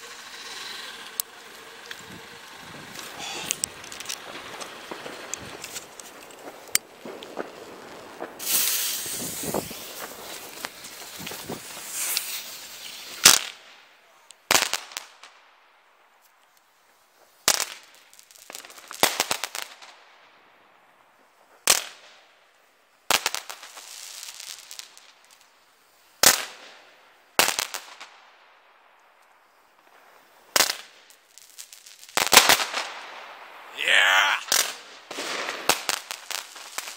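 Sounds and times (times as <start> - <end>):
fireworks hiss and crackle: 0.0 - 36.9
fireworks bangs: 2.0 - 13.5.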